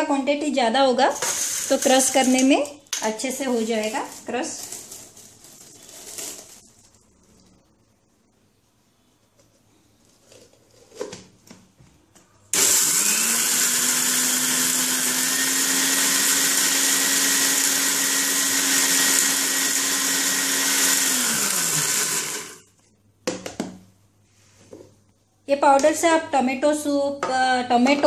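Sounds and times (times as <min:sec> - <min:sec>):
mixer grinder running: 0:01.2 - 0:01.9, 0:12.6 - 0:22.7.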